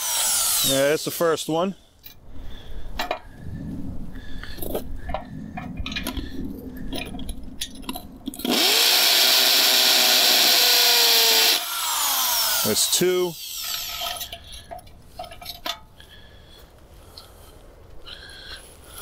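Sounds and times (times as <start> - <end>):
hammer drill drilling into concrete: 0.0 - 0.8, 8.4 - 14.0.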